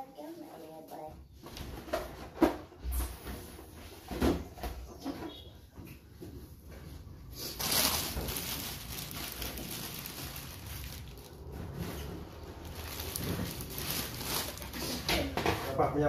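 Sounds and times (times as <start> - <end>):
balloons rustling and bumping: 6.2 - 15.8.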